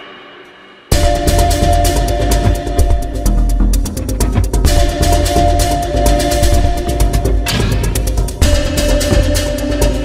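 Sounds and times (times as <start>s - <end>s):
fast beat with synth tones: 0.9s - 10.0s.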